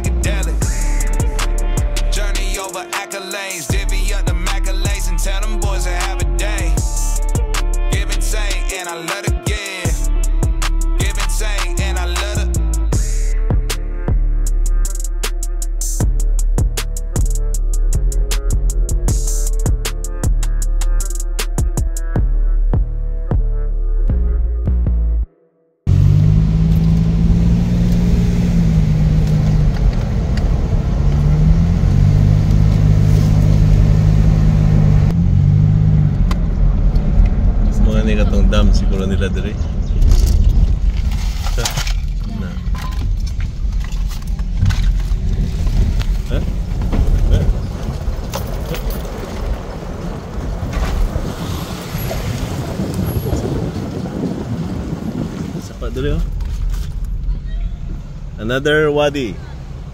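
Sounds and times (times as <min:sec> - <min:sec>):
car engine and road noise: 0:00.0 - 0:25.2, 0:25.9 - 0:59.9.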